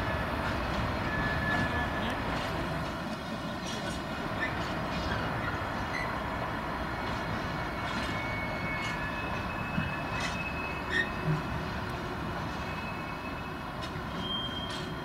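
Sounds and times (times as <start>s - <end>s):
diesel locomotives rumbling: 0.0s - 15.0s
locomotive brakes squealing: 1.0s - 2.0s, 3.7s - 6.2s, 7.6s - 11.5s, 12.5s - 15.0s
short squeaks: 14.1s - 15.0s.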